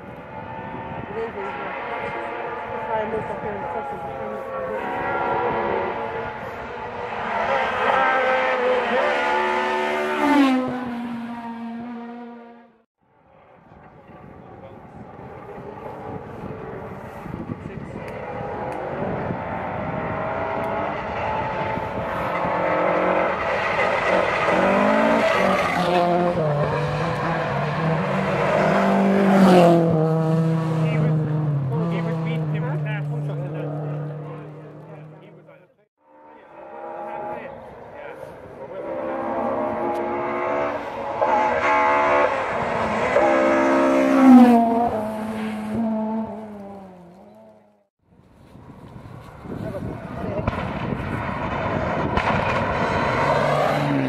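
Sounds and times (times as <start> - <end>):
rally car engine revving: 0.1 - 12.8, 15.0 - 35.6, 36.2 - 47.9, 49.8 - 54.0.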